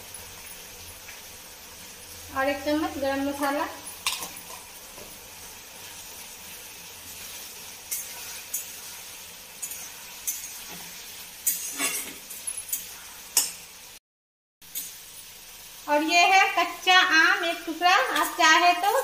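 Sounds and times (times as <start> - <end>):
food sizzling in oil: 0.0 - 14.0, 14.6 - 19.0.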